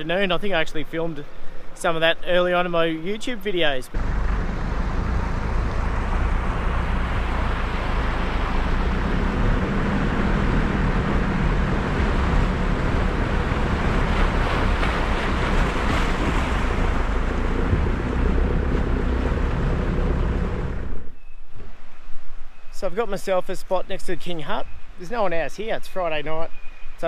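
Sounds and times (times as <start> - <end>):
diesel engine running: 3.9 - 21.0
water splashing around wheels: 4.0 - 21.0.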